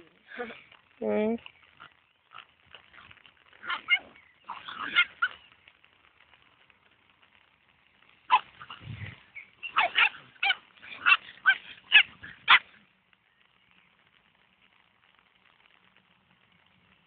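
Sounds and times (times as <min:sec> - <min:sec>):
dogs barking and yipping: 0:01.7 - 0:05.6, 0:08.2 - 0:12.9.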